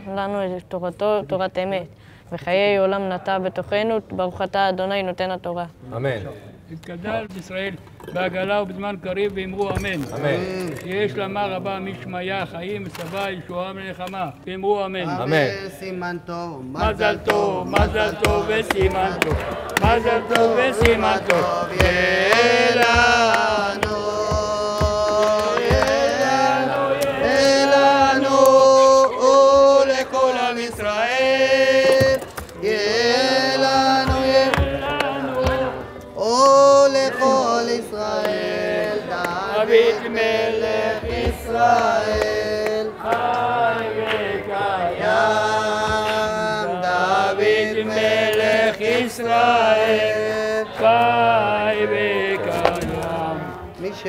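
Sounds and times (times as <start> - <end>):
congregation singing: 15.0 - 54.0
hand clapping: 16.8 - 46.5, 47.9 - 50.1.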